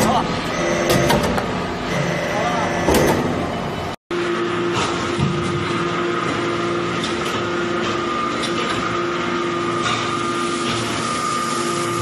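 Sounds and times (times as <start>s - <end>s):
hydraulic press humming: 0.0s - 4.0s.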